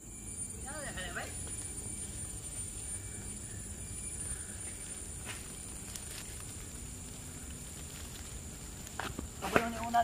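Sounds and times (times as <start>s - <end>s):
steady high-pitched tone: 0.0s - 5.7s
wind and bicycle riding noise: 0.0s - 10.0s.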